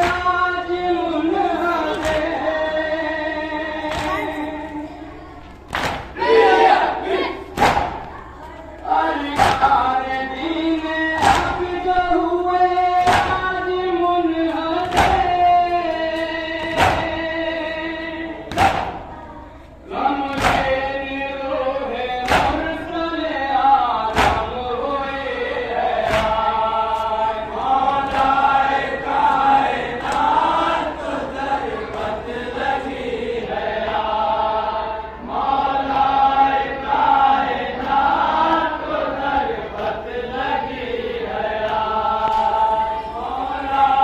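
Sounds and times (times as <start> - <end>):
men chanting together: 0.0 - 4.7, 5.7 - 8.1, 8.9 - 19.1, 19.9 - 44.0
chest-beating slaps: 5.7 - 6.2, 7.5 - 8.1, 13.0 - 13.4, 18.5 - 19.0, 20.3 - 20.8, 24.1 - 24.5, 26.0 - 26.4.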